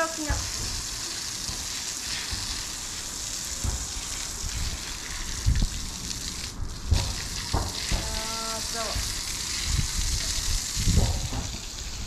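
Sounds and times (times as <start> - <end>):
hose water spraying on concrete: 0.0 - 12.0
low thumps: 10.8 - 11.7.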